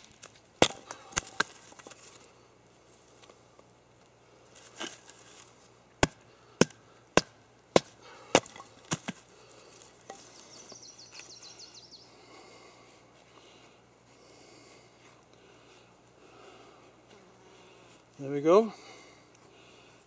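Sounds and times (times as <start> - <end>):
knife chopping into wood: 0.6 - 1.9, 6.0 - 9.2.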